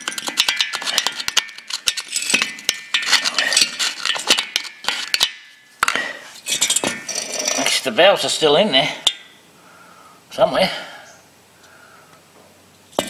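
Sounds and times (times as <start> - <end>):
metal rod scraping metal: 0.0 - 8.0.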